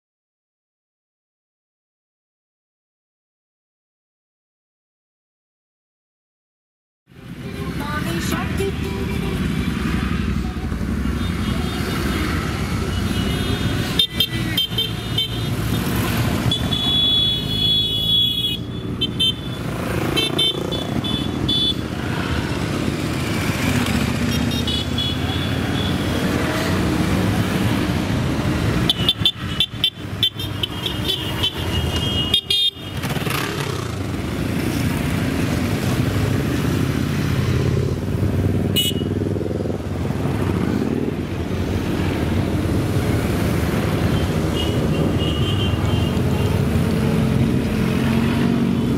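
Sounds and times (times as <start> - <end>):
motorcycles riding past: 7.2 - 48.9
horns tooting: 16.3 - 21.9, 28.8 - 33.4, 38.6 - 39.2, 44.1 - 46.8.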